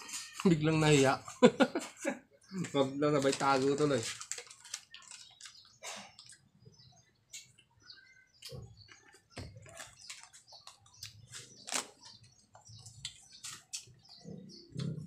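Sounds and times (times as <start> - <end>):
plastic packet handled: 3.1 - 5.7.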